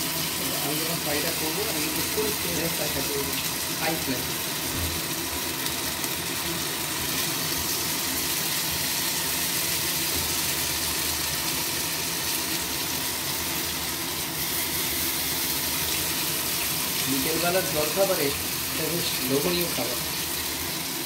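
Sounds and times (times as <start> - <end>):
chicken sizzling in hot oil: 0.0 - 21.0.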